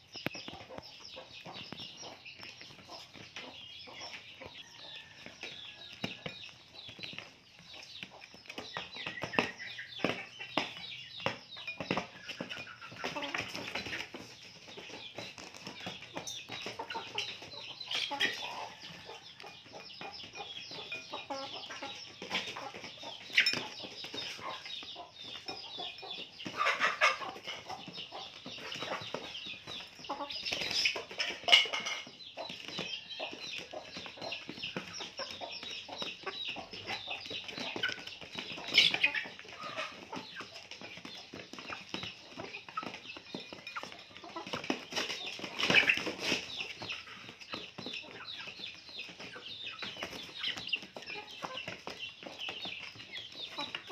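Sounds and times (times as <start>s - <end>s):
young chickens clucking and peeping: 0.0s - 53.9s
small clicks of animals eating: 0.1s - 20.4s.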